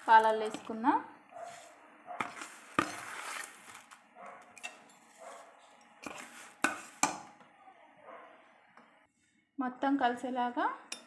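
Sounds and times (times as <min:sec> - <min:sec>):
utensil clinking on steel pot: 0:04.5 - 0:05.1.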